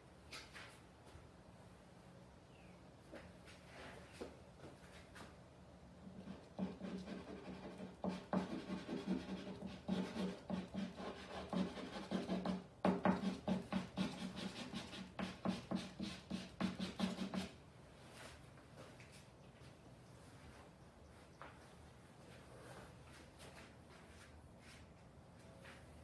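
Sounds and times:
charcoal scratching on canvas: 6.2s - 12.6s.

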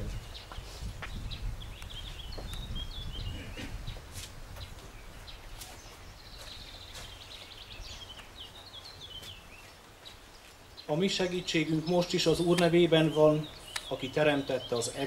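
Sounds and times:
faint footsteps: 0.0s - 10.9s
small birds chirping: 0.0s - 15.0s.

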